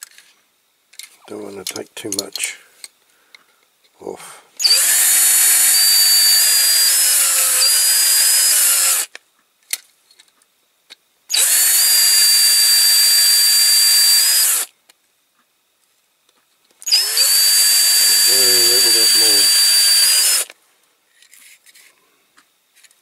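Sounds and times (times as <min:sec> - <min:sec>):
cordless drill whining: 0:04.6 - 0:09.1, 0:11.3 - 0:14.7, 0:16.8 - 0:20.5.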